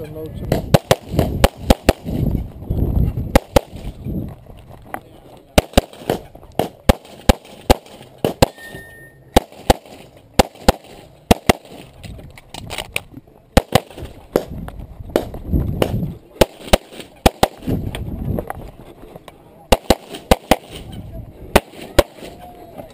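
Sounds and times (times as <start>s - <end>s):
pistol shots: 0.5s - 2.2s, 3.3s - 3.9s, 5.6s - 8.6s, 9.3s - 11.9s, 13.6s - 14.5s, 15.2s - 17.7s, 19.7s - 20.8s, 21.5s - 22.4s
low rumbling movement: 2.1s - 4.9s.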